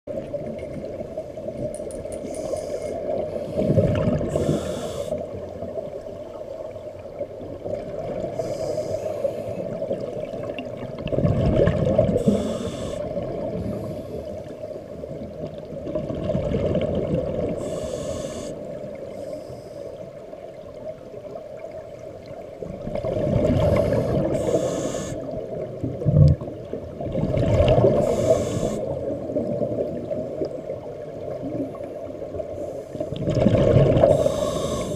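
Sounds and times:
regulator breathing hiss: 2.3s - 5.2s, 8.4s - 9.6s, 12.2s - 14.3s, 17.6s - 20.0s, 23.8s - 25.4s, 28.0s - 29.0s, 34.1s - 34.9s
exhaled bubbles gurgling: 2.9s - 19.1s, 20.4s - 34.9s.

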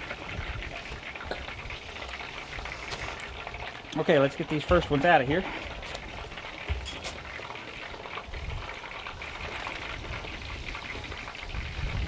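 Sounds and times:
wind rumbling on microphone: 0.0s - 3.4s, 8.2s - 12.0s
chicken wings deep-frying in oil: 0.0s - 12.0s.

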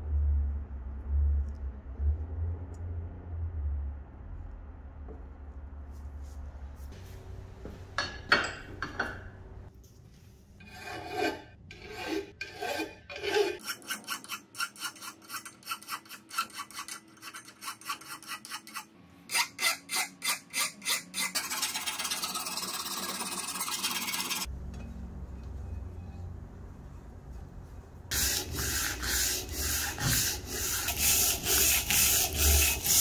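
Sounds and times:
hand file rasping on metal: 10.6s - 24.5s, 28.1s - 33.0s.

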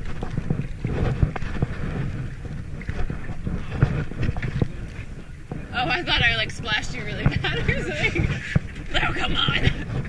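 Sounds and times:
kayak paddle splashing: 0.0s - 10.0s
wind rumble on microphone: 0.0s - 10.0s.

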